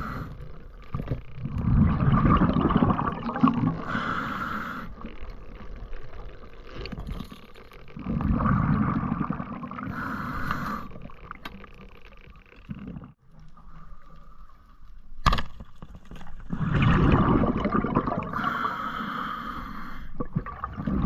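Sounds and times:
regulator inhale hiss: 0:00.0 - 0:00.5, 0:03.8 - 0:05.0, 0:09.9 - 0:11.0, 0:18.3 - 0:20.2
regulator exhale bubbling: 0:01.4 - 0:05.2, 0:07.9 - 0:11.3, 0:16.4 - 0:21.0.

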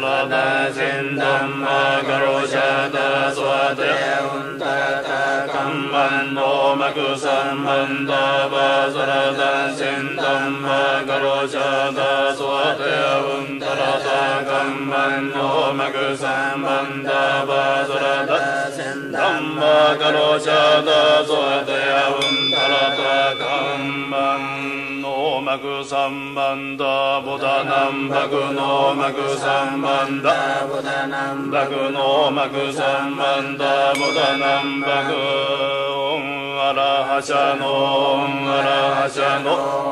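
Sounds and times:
person chanting: 0:00.0 - 0:39.9
high ringing tone: 0:22.1 - 0:25.6, 0:34.0 - 0:36.6.

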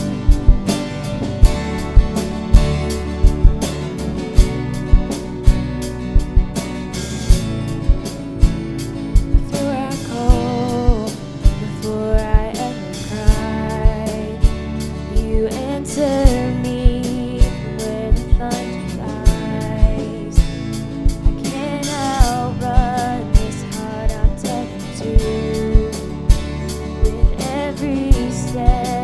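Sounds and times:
kick drum beat: 0:00.0 - 0:06.7, 0:07.3 - 0:09.6, 0:10.3 - 0:12.6, 0:16.8 - 0:18.5, 0:19.3 - 0:21.4, 0:22.2 - 0:24.4
live worship band playing: 0:00.0 - 0:29.0
woman singing: 0:09.4 - 0:20.8, 0:21.4 - 0:29.0.

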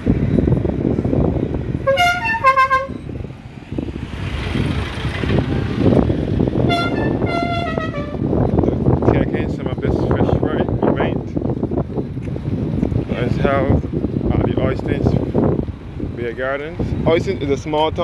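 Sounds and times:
road traffic passing: 0:00.0 - 0:18.0
vehicle horn stepping notes: 0:01.8 - 0:03.1, 0:06.6 - 0:08.3.

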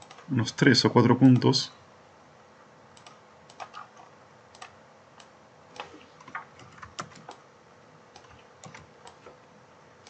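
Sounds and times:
mouse and keyboard clicks: 0:03.0 - 0:07.4, 0:08.1 - 0:09.4.

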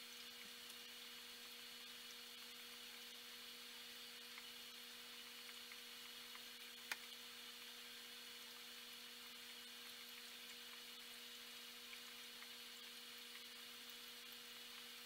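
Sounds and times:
faint electrical hum with hiss: 0:00.0 - 0:15.0
faint ticks: 0:04.3 - 0:04.5, 0:05.1 - 0:07.8, 0:11.8 - 0:15.0.

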